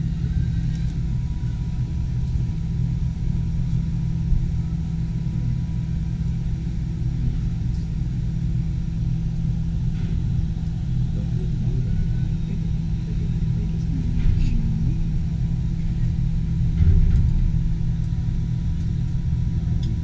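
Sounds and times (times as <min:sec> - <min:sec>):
low rumble and hum in gondola: 0:00.0 - 0:20.0.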